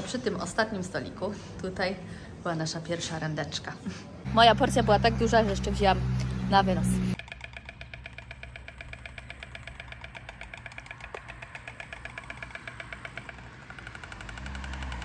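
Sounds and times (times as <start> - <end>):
storks clattering bills: 7.2 - 15.0.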